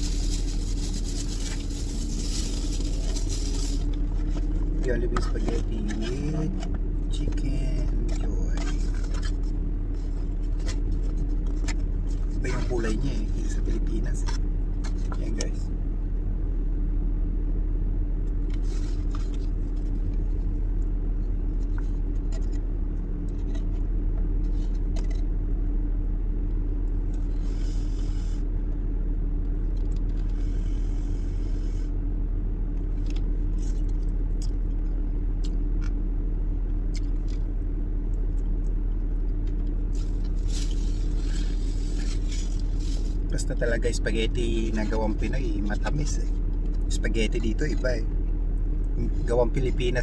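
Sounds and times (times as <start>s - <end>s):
cardboard food box rustling: 0.0s - 6.3s
car engine idling inside cabin: 0.0s - 50.0s.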